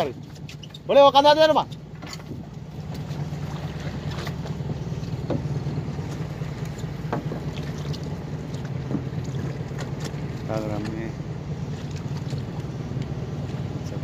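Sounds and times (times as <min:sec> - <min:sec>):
boat engine humming: 0:00.0 - 0:14.0
faint knocks: 0:06.2 - 0:07.6.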